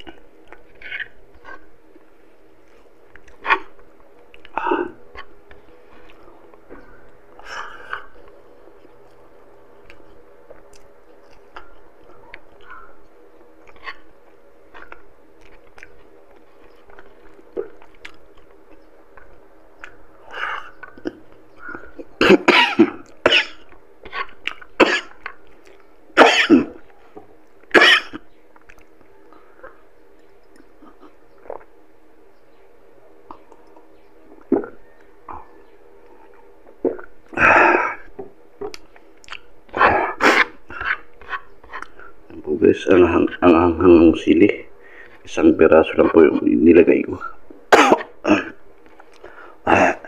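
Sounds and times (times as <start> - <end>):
quiet chewing: 0.0 - 26.0, 26.7 - 32.0, 33.1 - 37.4, 38.0 - 42.5, 47.3 - 49.6
person coughing: 22.2 - 23.6, 24.8 - 25.2, 26.2 - 26.8, 27.7 - 28.2, 47.7 - 48.6
throat clearing: 47.8 - 48.6.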